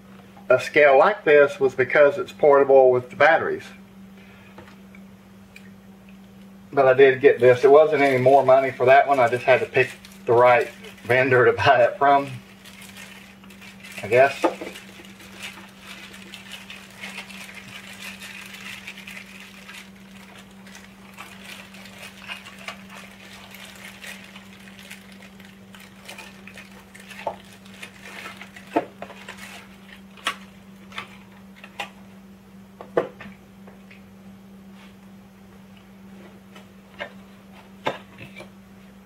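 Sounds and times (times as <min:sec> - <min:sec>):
plastic bag crinkling: 0:07.0 - 0:31.8.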